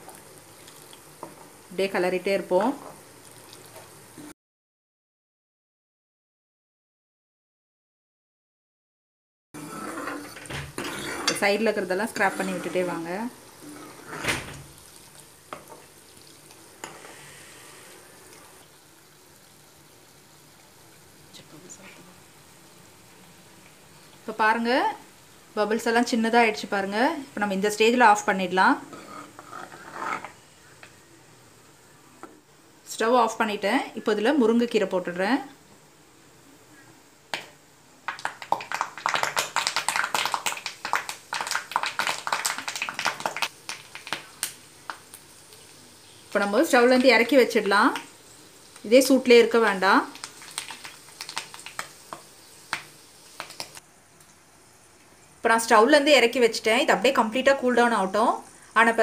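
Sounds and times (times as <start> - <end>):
butter sizzling and bubbling: 0.0 - 4.3, 9.6 - 59.0
leaves crackling in hot fat: 10.9 - 24.9, 37.4 - 54.4.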